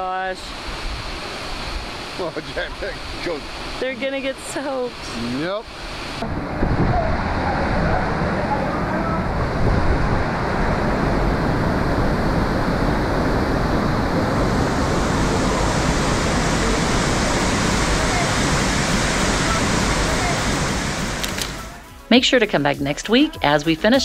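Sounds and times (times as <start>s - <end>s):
waterfall rushing: 0.1s - 21.8s.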